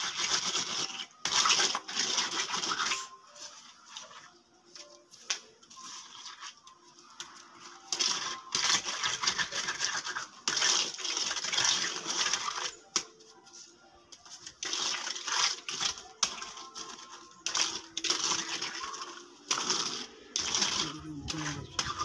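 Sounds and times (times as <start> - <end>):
trowel scraping wet concrete: 0.0 - 4.4, 7.9 - 12.9, 14.4 - 22.0.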